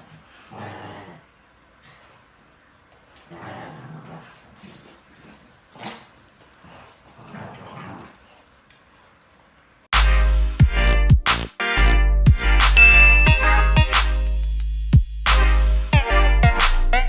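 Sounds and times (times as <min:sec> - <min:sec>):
dogs growling and yipping: 0:00.0 - 0:02.3, 0:03.0 - 0:09.3.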